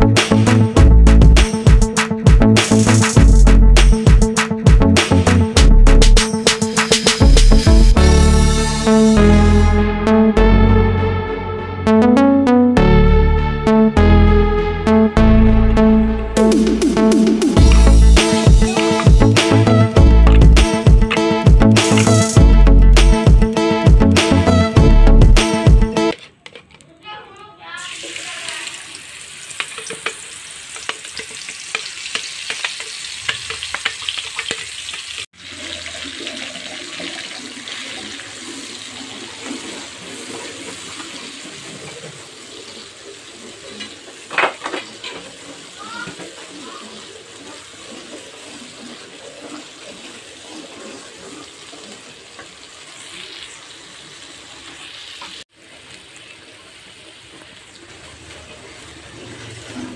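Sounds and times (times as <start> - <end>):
spice paste sizzling in oil: 27.8 - 41.6, 42.2 - 59.9.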